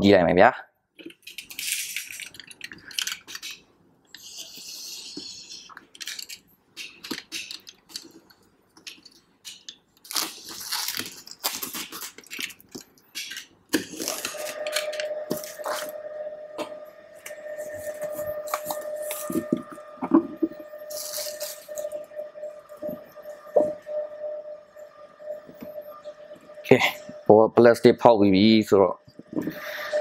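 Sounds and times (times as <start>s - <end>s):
plastic film crackling and tearing: 9.5s - 15.9s, 20.9s - 21.9s
box cutter slitting plastic wrap: 10.0s - 12.6s
steady tone: 13.8s - 30.0s.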